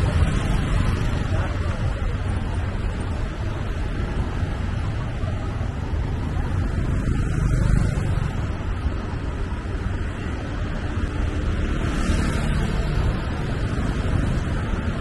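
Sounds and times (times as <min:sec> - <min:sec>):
traffic engines and tyres rumbling: 0:00.0 - 0:15.0.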